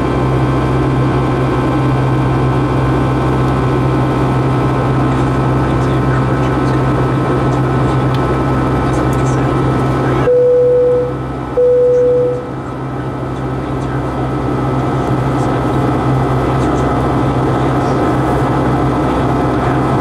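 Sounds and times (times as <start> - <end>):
jet engines heard from cabin: 0.0 - 20.0
electronic tones: 10.3 - 12.5.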